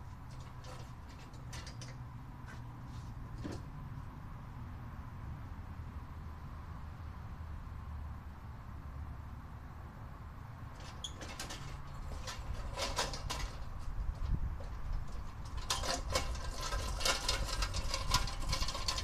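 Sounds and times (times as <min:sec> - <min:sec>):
hard objects clicking and rattling: 0:10.8 - 0:19.0.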